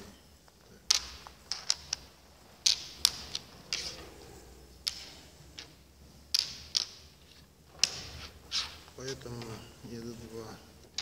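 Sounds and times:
draughts pieces clicking on board: 0.8 - 4.1, 4.8 - 9.5.

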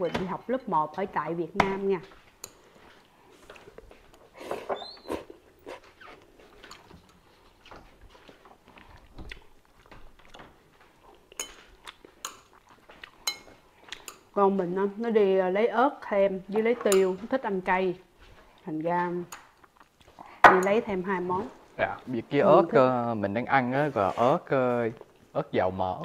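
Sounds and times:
chewing spaghetti: 2.1 - 14.4, 18.2 - 20.4.

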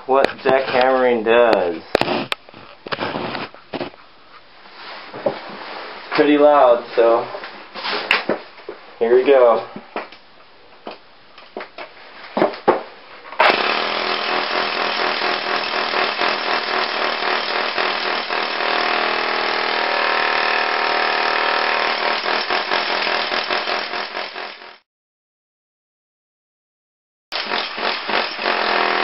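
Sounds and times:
jackhammer hammering concrete: 13.4 - 24.8, 27.3 - 29.0.

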